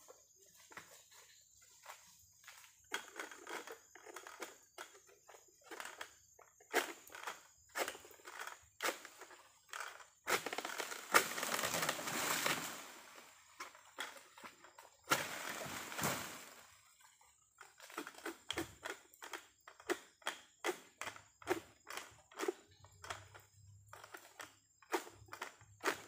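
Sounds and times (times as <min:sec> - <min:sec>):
palm fronds rustling and crackling: 0:06.7 - 0:18.6.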